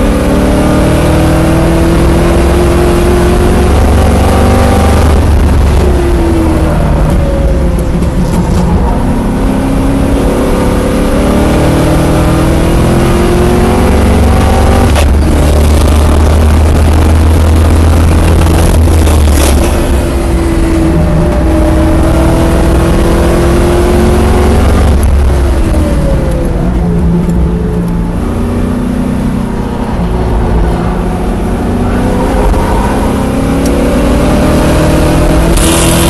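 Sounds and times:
race car engine from inside cabin: 0.0s - 36.0s.

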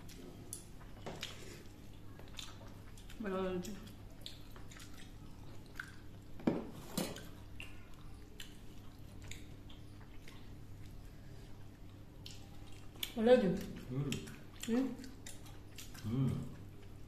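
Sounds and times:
chewing and wet squishing: 0.0s - 17.0s.

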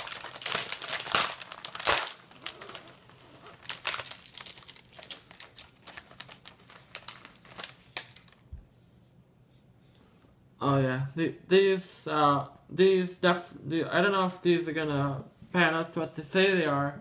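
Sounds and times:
plastic package crinkling: 0.0s - 8.5s.

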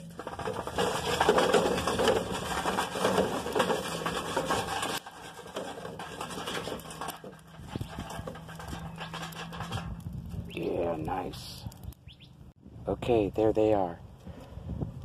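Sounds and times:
sheet metal scraping and rattling: 0.0s - 11.0s.

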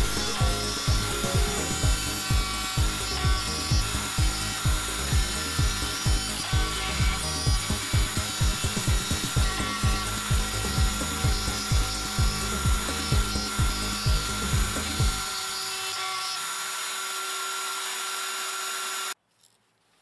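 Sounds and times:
background music with thumping beat: 0.0s - 15.3s
router trimming wood: 0.0s - 19.2s.

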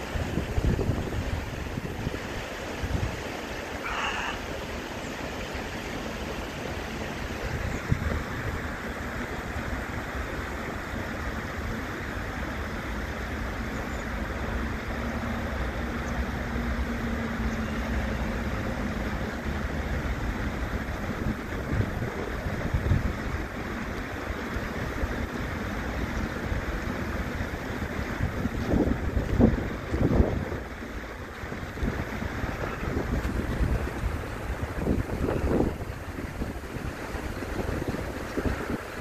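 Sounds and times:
wind buffeting microphone: 0.0s - 3.4s, 6.8s - 11.9s, 18.5s - 39.0s
stream rippling over stones: 0.0s - 39.0s.

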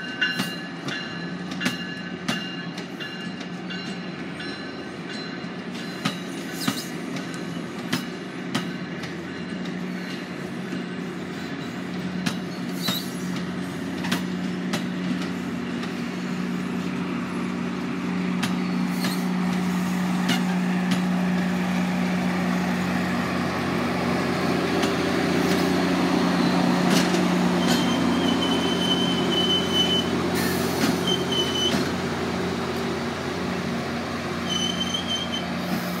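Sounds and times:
diesel locomotive engine drone: 0.0s - 36.0s
train wheels clicking over rail joints: 0.0s - 36.0s
high squeal: 27.6s - 31.8s, 34.4s - 35.6s.

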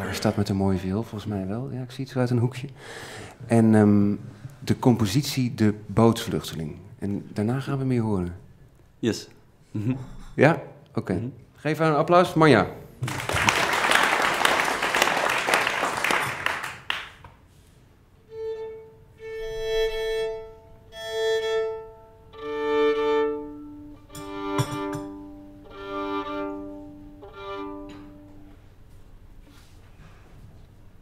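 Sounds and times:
audience applause: 13.0s - 17.2s
violin playing slow notes: 18.2s - 28.7s.

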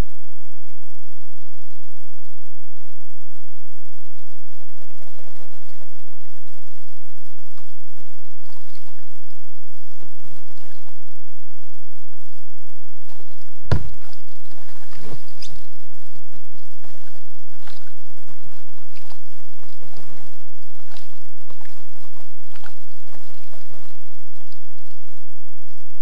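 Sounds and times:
paddling clicks and patters: 12.2s - 25.8s.

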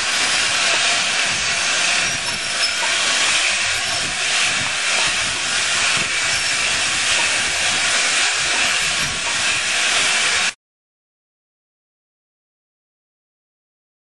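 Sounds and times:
steam locomotive venting steam: 0.0s - 10.6s.

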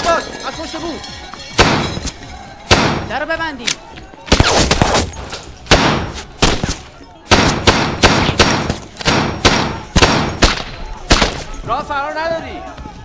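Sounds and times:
gunshots with ringing tail: 1.6s - 2.0s, 2.7s - 3.1s, 5.7s - 6.7s, 7.3s - 11.6s.

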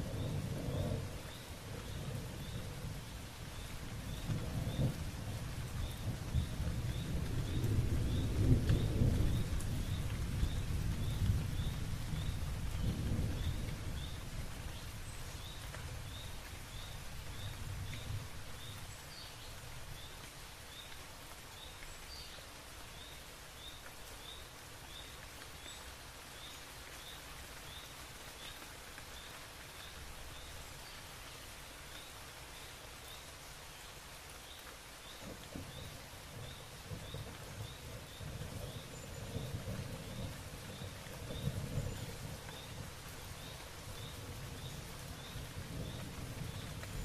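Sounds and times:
thunder rumble: 0.0s - 16.2s, 35.2s - 47.0s
rain hissing: 0.0s - 47.0s.

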